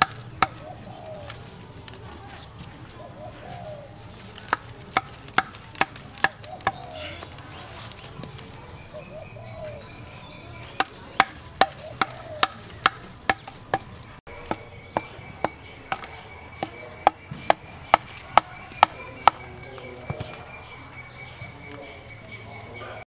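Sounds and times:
bamboo mallet knocking stakes: 0.0 - 1.4, 4.4 - 7.3, 10.6 - 20.4.

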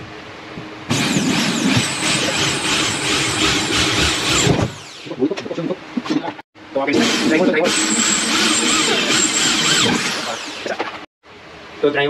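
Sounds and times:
electric drill boring into drywall: 0.9 - 5.1, 7.0 - 10.8.

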